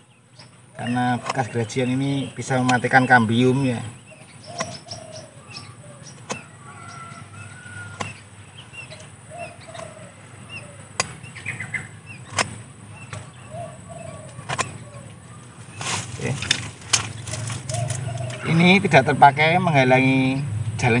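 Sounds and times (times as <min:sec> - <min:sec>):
birds calling: 0:00.0 - 0:21.0
cutter snipping wood: 0:11.0 - 0:11.2, 0:12.2 - 0:13.3, 0:14.4 - 0:14.8.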